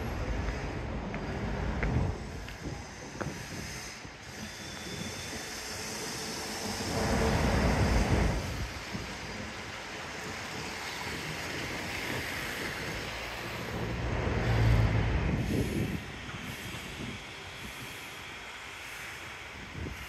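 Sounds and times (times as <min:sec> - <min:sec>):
street traffic noise: 0:00.0 - 0:20.0
motor vehicle passing: 0:13.4 - 0:15.8.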